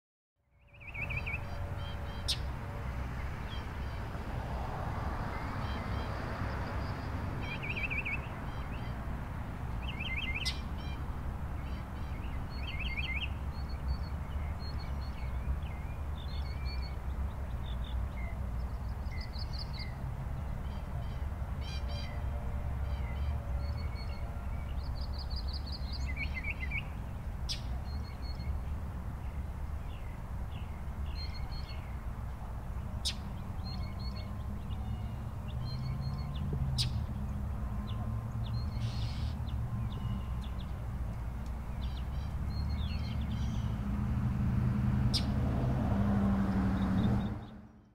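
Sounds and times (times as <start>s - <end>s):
birds chirping and singing: 0.6s - 2.6s, 22.9s - 32.1s, 32.8s - 43.8s.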